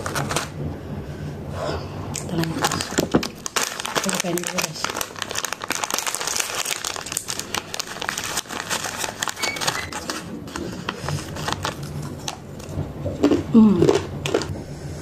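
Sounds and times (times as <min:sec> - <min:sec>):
plastic packet crinkling: 0:02.2 - 0:12.7.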